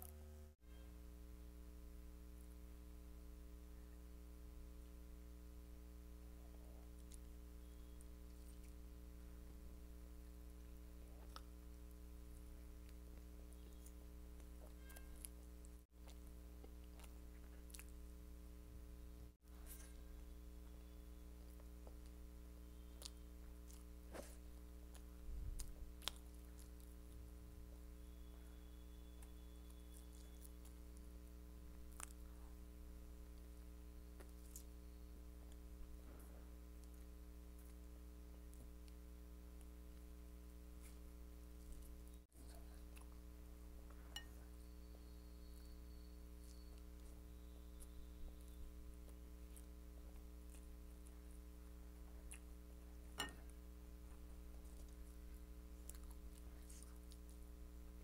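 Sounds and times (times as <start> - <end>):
low electrical hum: 0.0 - 58.0
person chewing food: 11.0 - 18.1, 21.4 - 27.3, 31.7 - 32.6, 33.2 - 35.6, 39.6 - 57.6.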